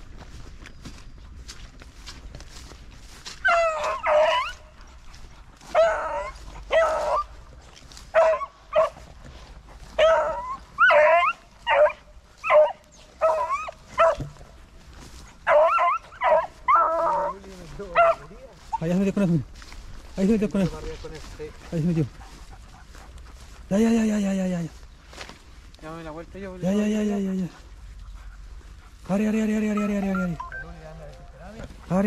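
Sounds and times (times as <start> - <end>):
dogs baying: 3.2 - 19.3, 20.6 - 24.7, 26.6 - 32.0.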